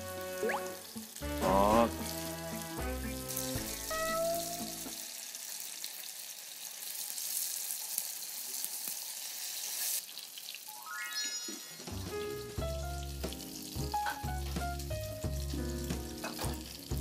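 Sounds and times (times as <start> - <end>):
music: 0.0 - 5.1, 10.8 - 17.0
tofu sizzling in oil: 0.0 - 11.1, 11.9 - 17.0.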